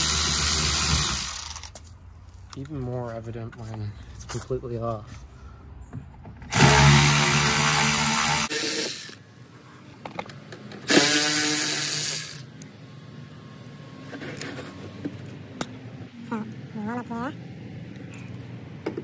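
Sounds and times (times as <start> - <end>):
cordless ratchet motor: 0.0 - 1.8, 10.9 - 12.5.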